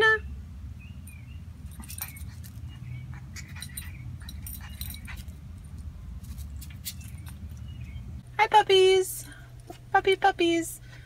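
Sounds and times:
light clicks and jingles: 1.0s - 8.0s
puppy whimpering squeaks: 1.8s - 5.3s.

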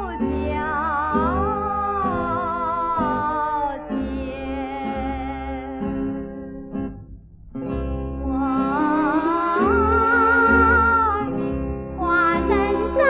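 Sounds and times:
woman singing with vibrato: 0.0s - 6.1s, 8.2s - 11.4s, 12.0s - 13.0s
instrumental accompaniment: 0.0s - 13.0s.

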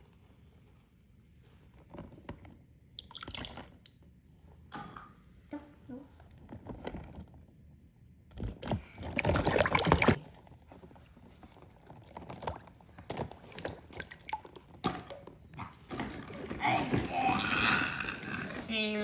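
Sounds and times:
water dripping: 3.0s - 4.0s
water splashing in a tub: 3.0s - 4.0s, 8.5s - 10.7s, 11.4s - 17.4s.

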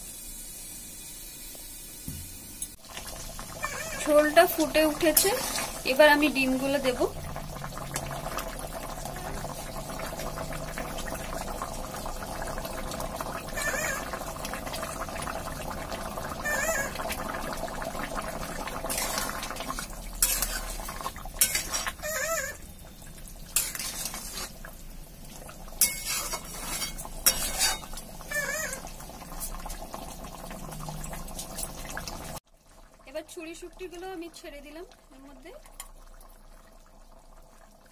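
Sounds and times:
gravy bubbling in a pan: 2.7s - 37.9s
spatula clinking and scraping a pan: 18.9s - 22.6s, 23.5s - 24.6s, 25.8s - 28.8s.

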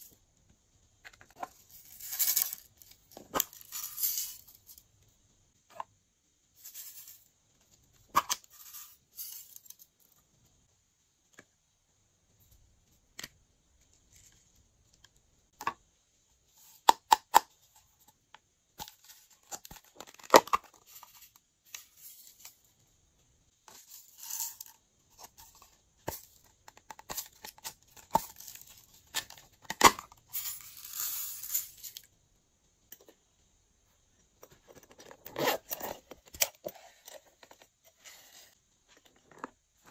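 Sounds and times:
beads rattling onto glass dish: 1.6s - 4.8s, 23.7s - 24.8s, 30.2s - 32.1s.

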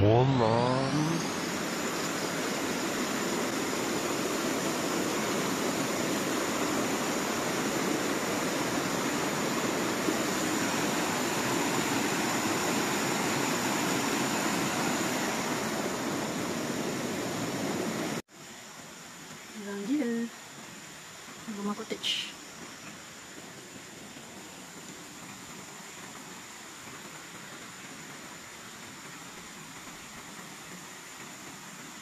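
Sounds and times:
water flowing over rocks: 0.0s - 32.0s.

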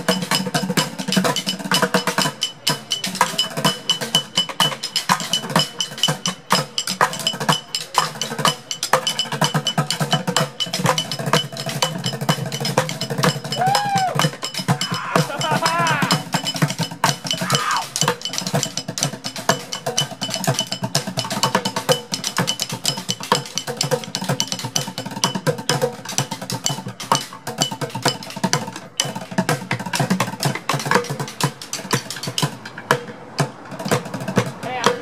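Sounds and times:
drumsticks striking metal cart: 12.0s - 18.8s, 33.8s - 35.0s
drumsticks beating plastic buckets: 34.5s - 35.0s.

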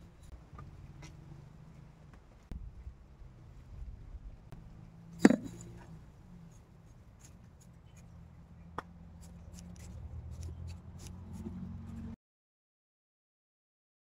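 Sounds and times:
low steady rumble: 0.0s - 12.2s
stick scratching in potting mix: 5.2s - 12.2s.

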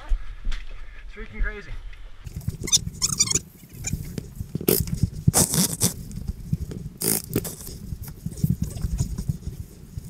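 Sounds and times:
rustling and knocking on microphone: 2.3s - 10.0s.

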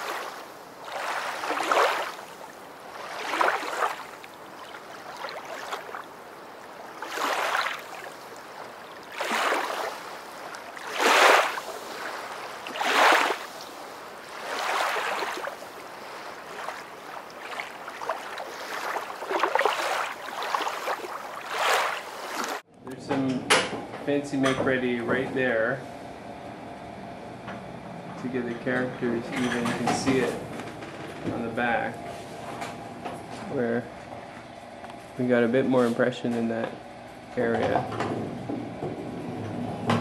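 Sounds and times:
water sloshing and lapping: 0.0s - 22.7s.

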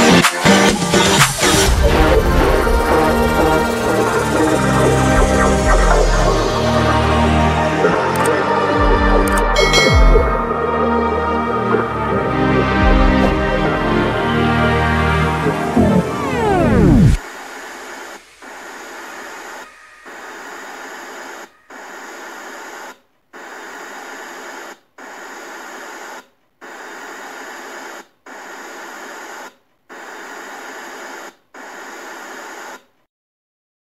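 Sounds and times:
electronic static hiss bursts: 1.4s - 7.3s, 15.8s - 33.0s.

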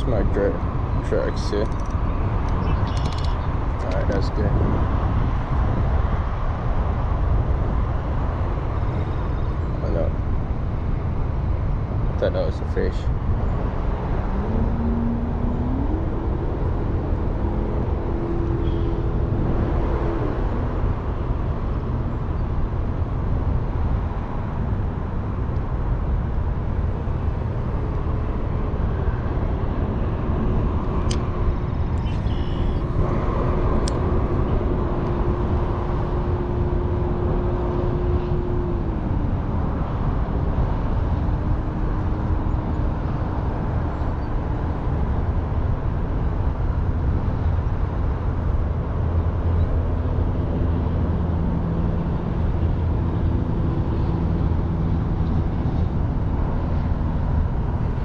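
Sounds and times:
distant road traffic: 0.0s - 58.0s
wind: 0.0s - 58.0s
sharp clicks: 1.6s - 4.1s
passing engine drone: 13.0s - 22.0s, 26.4s - 43.9s.

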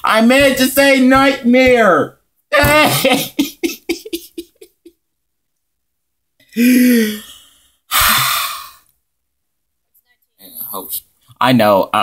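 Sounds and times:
person groaning: 2.5s - 3.4s, 6.5s - 8.8s
loud breathy sigh: 6.5s - 8.8s.

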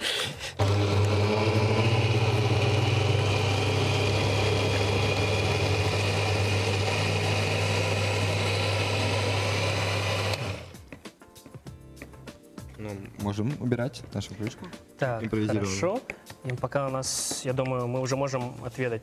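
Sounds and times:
blender running: 0.6s - 10.8s.

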